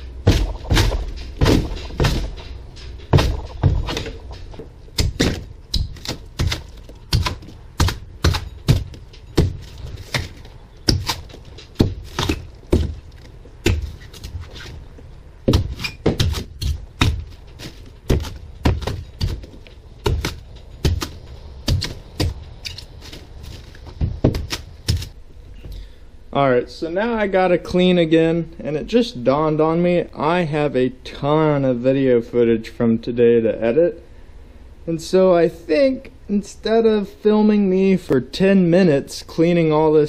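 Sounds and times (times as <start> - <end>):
hand tool hacking at foam: 5.0 - 13.0, 13.6 - 14.4, 15.5 - 23.2.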